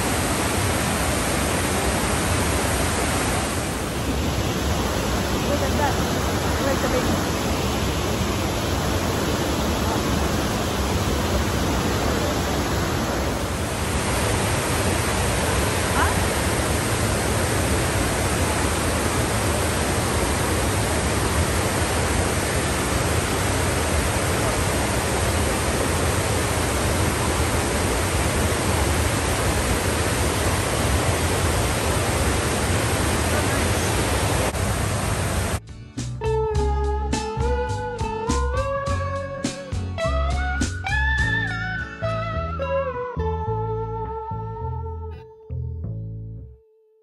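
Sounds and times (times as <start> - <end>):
waterfall rushing: 0.0 - 35.6.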